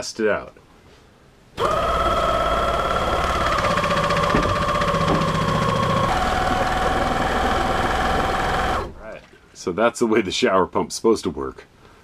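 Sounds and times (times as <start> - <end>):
pump motor humming and chugging: 1.6 - 9.2.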